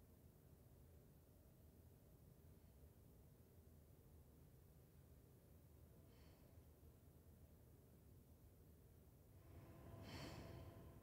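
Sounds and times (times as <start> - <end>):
faint low rumble: 5.4 - 11.0.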